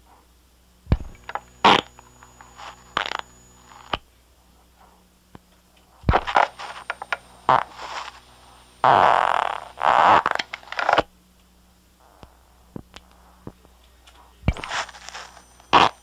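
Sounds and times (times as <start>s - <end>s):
low playback hum: 0.0s - 16.0s
farts: 8.8s - 11.0s, 14.5s - 16.0s.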